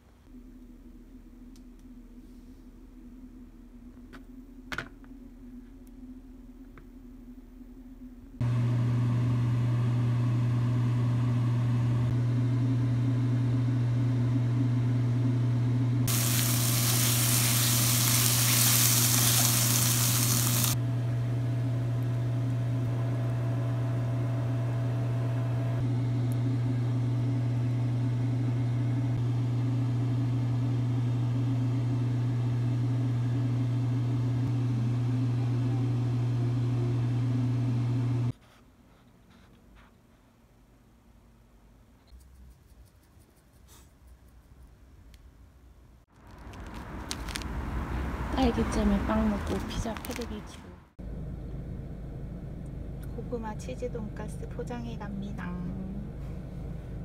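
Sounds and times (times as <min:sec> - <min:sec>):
low machine hum: 0:00.0 - 0:38.3, 0:48.1 - 0:57.0
loud hiss: 0:16.1 - 0:20.8.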